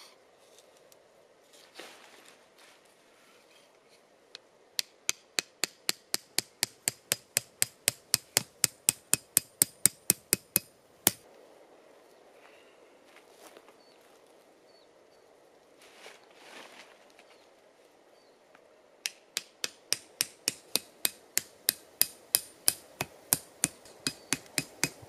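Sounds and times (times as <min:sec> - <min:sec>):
hatchet knocking tent peg: 0:04.8 - 0:11.2, 0:19.0 - 0:25.0.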